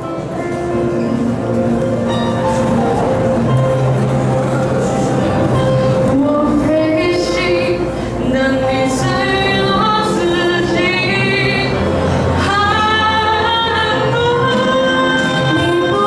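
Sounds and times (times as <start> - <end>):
instrumental accompaniment: 0.0 - 16.0
girl singing into microphone: 6.0 - 16.0.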